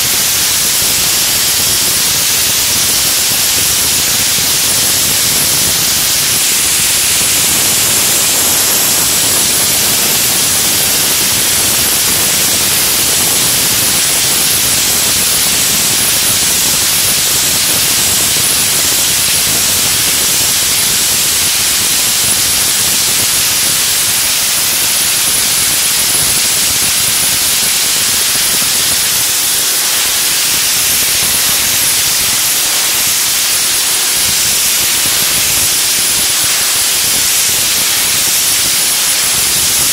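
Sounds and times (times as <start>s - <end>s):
abrasive jet hissing: 0.0s - 39.9s
high whine: 0.0s - 39.9s.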